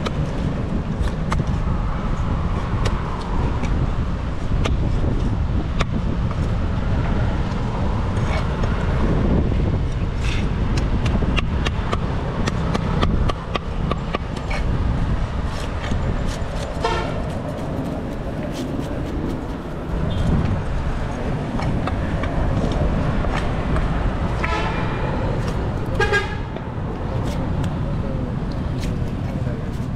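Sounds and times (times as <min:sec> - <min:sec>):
road traffic rumble: 0:00.0 - 0:29.9
vehicle horn toot: 0:16.8 - 0:17.2, 0:26.0 - 0:26.5.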